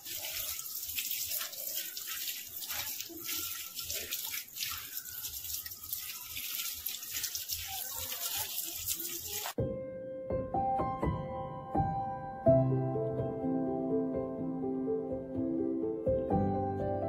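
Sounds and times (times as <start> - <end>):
water splashing on wire birdcage: 0.0 - 9.6.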